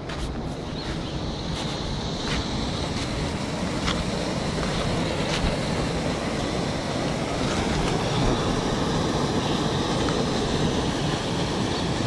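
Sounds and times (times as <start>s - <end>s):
river and small waterfall rushing: 0.0s - 12.0s
wind buffeting microphone: 0.0s - 12.0s.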